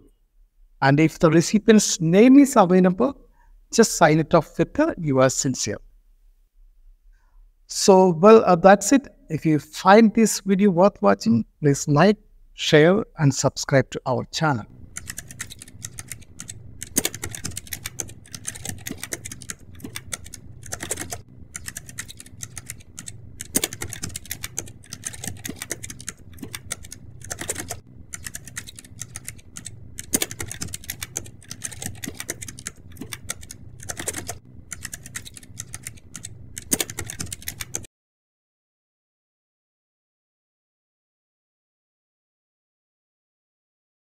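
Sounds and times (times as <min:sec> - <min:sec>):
fast keyboard typing: 0:14.7 - 0:37.9.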